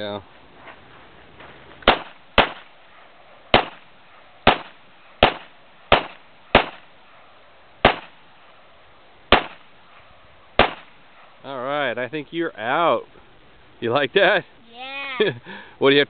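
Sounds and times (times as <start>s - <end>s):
pistol shots: 1.8s - 2.8s, 3.5s - 6.9s, 7.8s - 8.2s, 9.3s - 9.8s, 10.6s - 11.0s.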